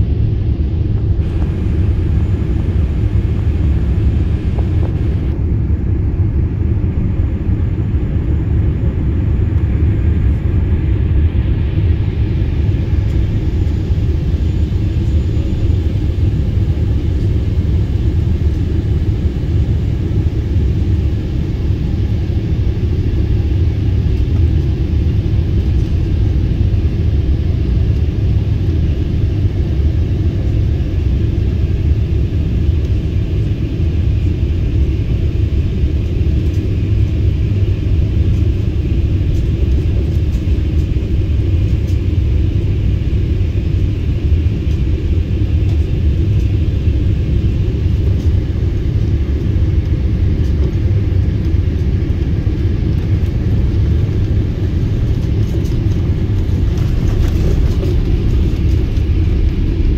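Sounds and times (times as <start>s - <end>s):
jet engine rumble: 0.0s - 59.9s.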